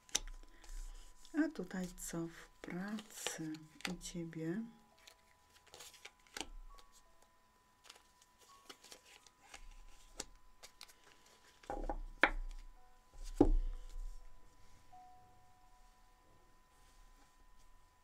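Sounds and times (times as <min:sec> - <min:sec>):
cards tapping on cloth table: 0:13.3 - 0:13.9.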